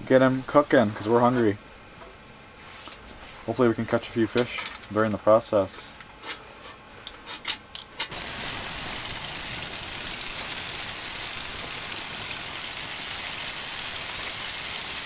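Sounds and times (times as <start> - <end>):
fish frying in oil sizzling: 8.1 - 15.0.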